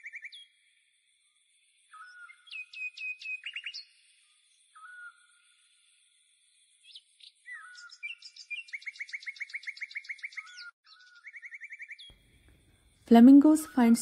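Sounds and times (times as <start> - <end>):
songbirds chirping and trilling: 0.0 - 14.0.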